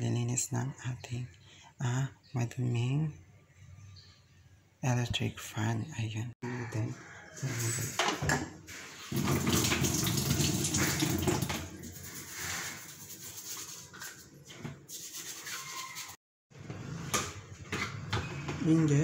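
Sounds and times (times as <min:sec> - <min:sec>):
tap water splashing on fan guard: 0:09.2 - 0:11.8.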